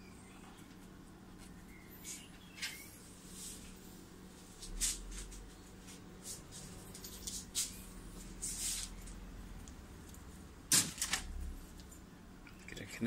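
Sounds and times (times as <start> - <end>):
faint steady hum: 0.0 - 13.0
rustles and scrapes: 2.0 - 9.2.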